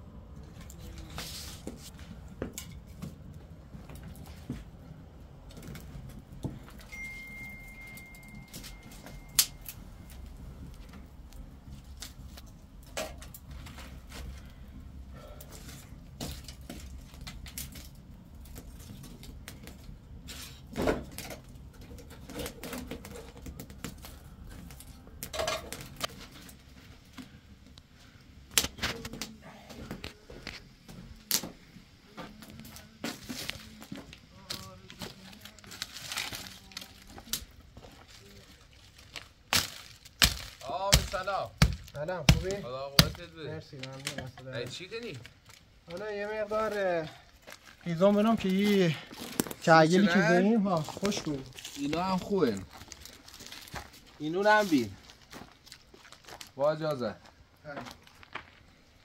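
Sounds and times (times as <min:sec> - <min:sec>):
wood fire crackling: 0:00.0 - 0:59.0
high whistle: 0:06.9 - 0:09.7
sticks knocking in fire: 0:39.6 - 0:43.3.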